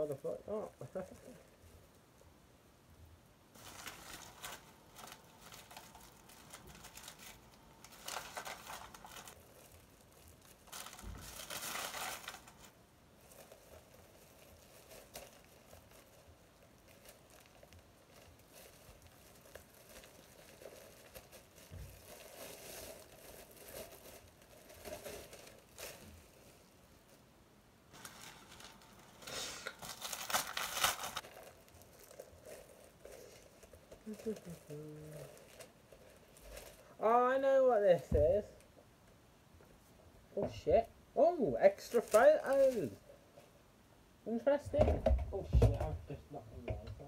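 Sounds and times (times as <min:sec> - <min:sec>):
paper packaging rustling: 0:03.5 - 0:27.2, 0:27.9 - 0:38.6, 0:41.7 - 0:43.5.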